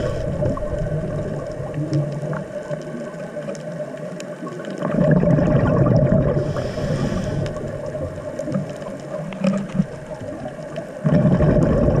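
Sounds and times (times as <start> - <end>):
diver exhaling bubbles: 4.8 - 8.8, 11.0 - 12.0.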